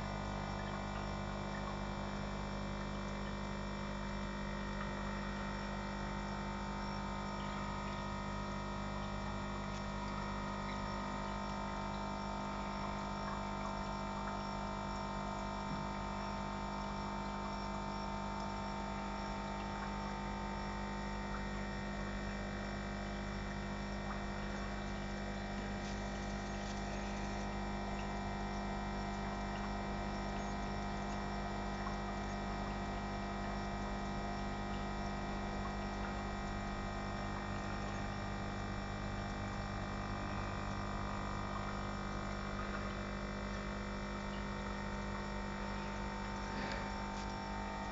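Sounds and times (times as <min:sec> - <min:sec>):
aquarium pump humming: 0:00.0 - 0:47.9
water bubbling: 0:00.0 - 0:47.9.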